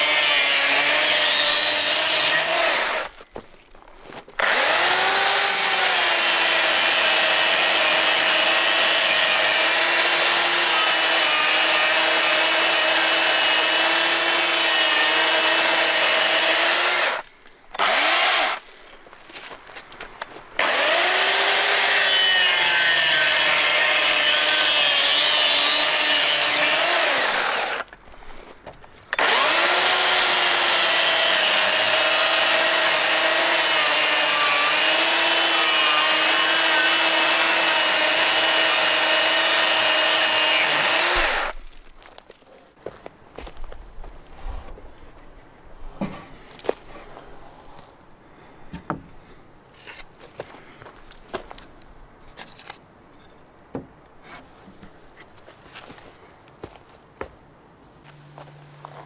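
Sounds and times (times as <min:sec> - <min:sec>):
chainsaw cutting wood: 0:00.0 - 0:03.2, 0:04.4 - 0:18.7, 0:20.6 - 0:28.0, 0:29.1 - 0:41.9.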